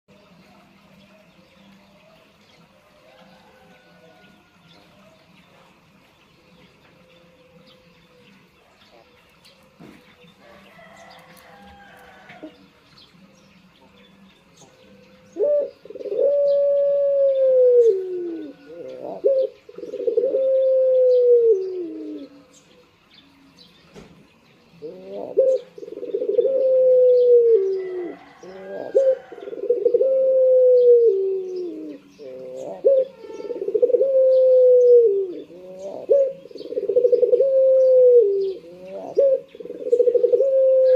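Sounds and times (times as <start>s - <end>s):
dove cooing: 14.9s - 22.9s, 24.7s - 40.9s.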